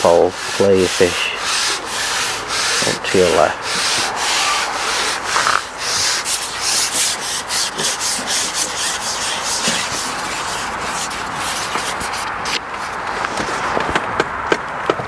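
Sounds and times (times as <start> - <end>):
rustling rubbing hiss: 0.0 - 13.7.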